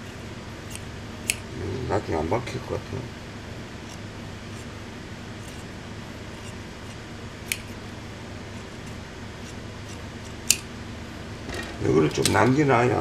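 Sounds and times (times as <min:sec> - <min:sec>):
shears snipping cloth: 0:00.0 - 0:01.5, 0:06.4 - 0:07.8
sharp shears click: 0:00.7 - 0:01.5, 0:07.4 - 0:07.8, 0:10.4 - 0:10.7.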